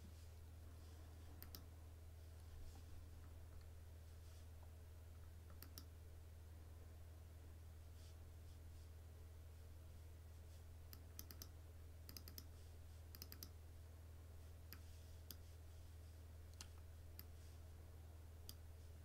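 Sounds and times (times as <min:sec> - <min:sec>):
low steady hum: 0:00.0 - 0:19.0
computer mouse clicks: 0:01.4 - 0:01.7, 0:05.5 - 0:05.9, 0:10.9 - 0:11.5, 0:12.1 - 0:12.5, 0:13.1 - 0:13.6.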